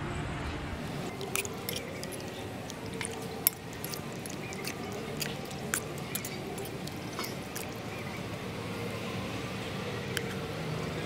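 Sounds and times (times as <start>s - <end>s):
spoon stirring thick porridge: 0.8s - 8.4s, 10.1s - 11.0s
spoon clicking against bowl: 1.0s - 8.0s, 10.2s - 10.4s.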